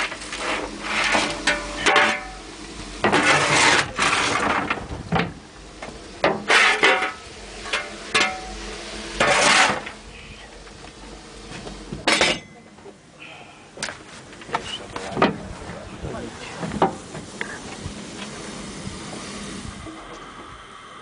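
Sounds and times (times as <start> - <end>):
shovel scraping coal: 0.0 - 2.4, 3.0 - 4.7, 6.4 - 8.5, 9.2 - 10.0
sharp metal clanks: 12.0 - 12.7.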